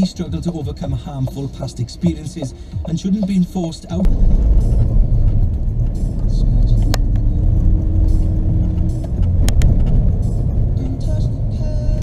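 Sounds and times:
car engine and road rumble: 0.0 - 12.0
sharp click: 6.6 - 7.3, 8.9 - 10.0.

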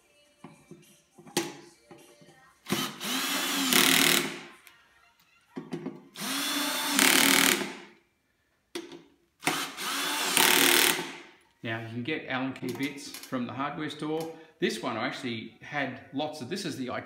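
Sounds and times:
cordless drill driving screws: 2.7 - 4.4, 6.1 - 7.8, 9.4 - 11.1.

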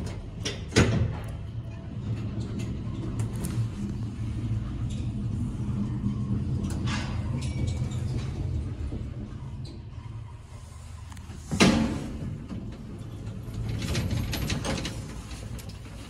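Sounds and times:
elevator car rumbling: 0.0 - 16.0.

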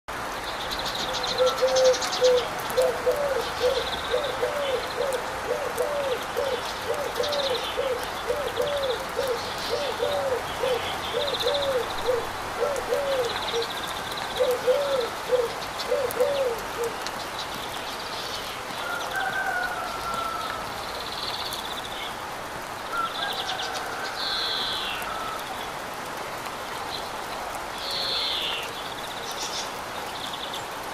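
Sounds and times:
birds chirping and trilling: 0.5 - 19.7
bird hooting: 1.4 - 13.7, 14.4 - 17.0.

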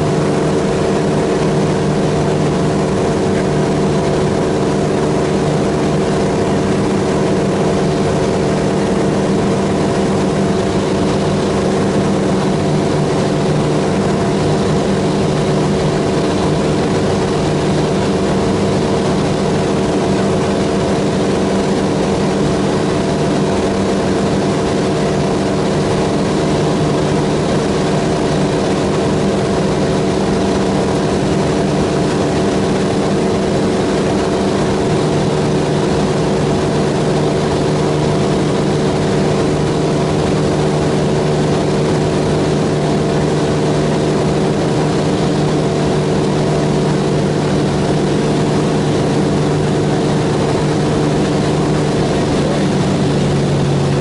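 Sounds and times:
aircraft engine droning in cabin: 0.0 - 54.0.

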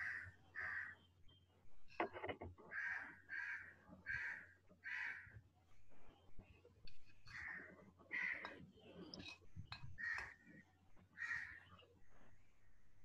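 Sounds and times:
bird cawing faintly: 0.0 - 1.1, 2.7 - 5.4, 7.3 - 8.7, 9.9 - 10.6, 11.2 - 11.7.

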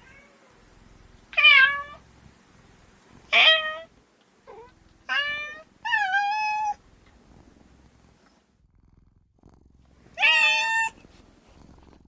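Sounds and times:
cat meowing: 0.0 - 0.5, 1.4 - 2.0, 3.3 - 3.9, 4.5 - 6.8, 10.2 - 11.0.

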